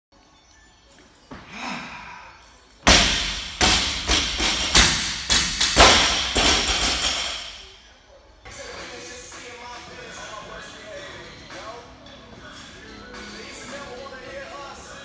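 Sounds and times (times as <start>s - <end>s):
barbells thudding on rubber floor: 2.9s - 7.5s.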